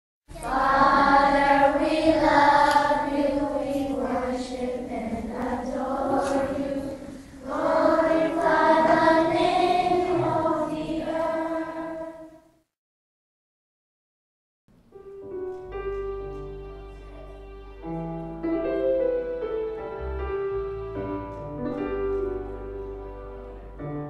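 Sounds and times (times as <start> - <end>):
choir holding sustained chords: 0.3 - 12.4, 16.5 - 24.0.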